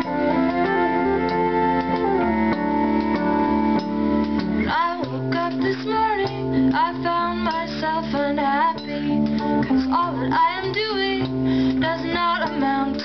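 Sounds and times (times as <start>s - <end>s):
held band chords: 0.0s - 13.0s
low bass notes: 0.0s - 13.0s
woman singing: 4.6s - 13.0s.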